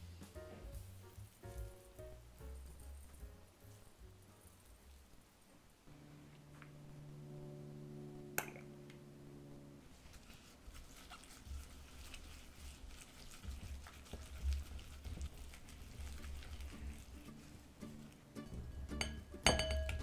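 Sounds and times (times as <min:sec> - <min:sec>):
steady low tone: 0:05.9 - 0:10.0
wet squelching of paste mixing: 0:09.9 - 0:18.6.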